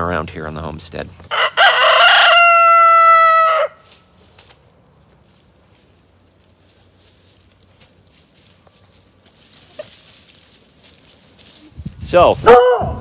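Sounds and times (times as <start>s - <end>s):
rooster crowing: 1.3s - 3.8s, 12.5s - 13.0s
faint rustling: 3.8s - 12.1s.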